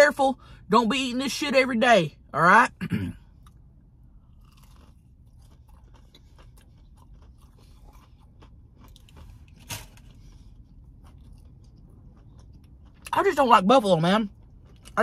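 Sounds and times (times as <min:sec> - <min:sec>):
person chewing crunchy food: 0:03.2 - 0:15.0.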